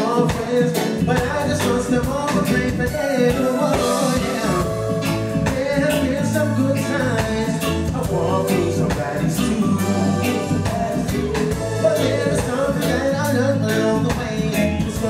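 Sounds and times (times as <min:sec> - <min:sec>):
live band playing: 0:00.0 - 0:15.0
man singing: 0:00.0 - 0:15.0.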